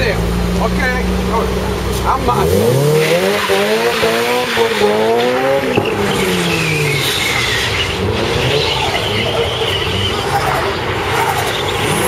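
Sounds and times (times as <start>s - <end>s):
car engine revving: 0.0s - 12.0s
tyres squealing: 2.0s - 12.0s.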